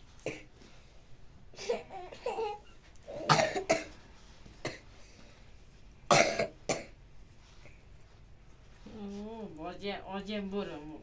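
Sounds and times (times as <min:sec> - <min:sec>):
person coughing: 0:03.2 - 0:04.0, 0:06.1 - 0:07.0.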